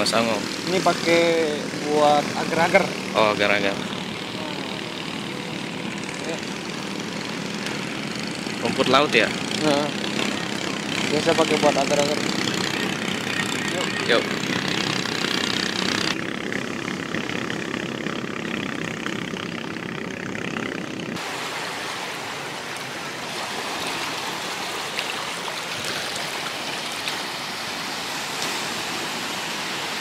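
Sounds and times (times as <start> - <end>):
sea surf rushing: 21.2 - 30.0
wind at the shore: 21.2 - 30.0.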